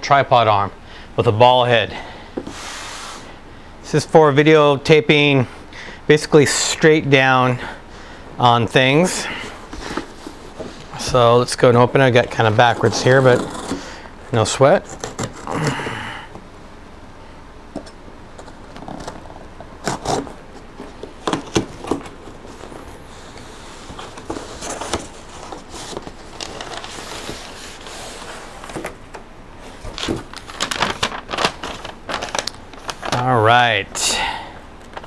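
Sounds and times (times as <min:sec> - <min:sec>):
paper rustling: 0:09.2 - 0:15.8, 0:18.4 - 0:33.6
cardboard flaps crackling: 0:18.5 - 0:33.6
knife scraping through tape: 0:19.8 - 0:20.4.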